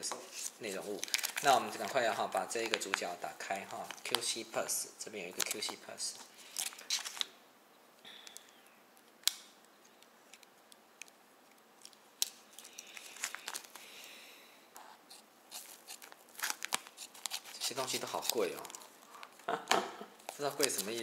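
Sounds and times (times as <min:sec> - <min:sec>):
plastic bag crinkling: 0:00.3 - 0:04.4, 0:06.4 - 0:07.3, 0:11.8 - 0:14.0, 0:15.5 - 0:19.1, 0:20.2 - 0:21.0.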